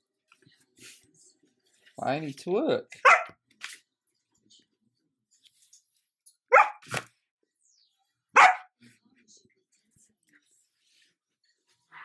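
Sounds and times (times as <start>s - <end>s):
puppy barking: 3.0s - 3.4s, 6.5s - 6.9s, 8.4s - 8.8s.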